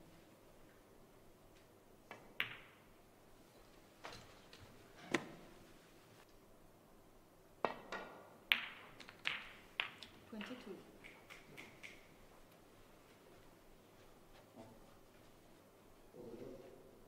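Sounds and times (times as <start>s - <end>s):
snooker balls clicking: 2.1s - 2.8s, 7.7s - 12.2s.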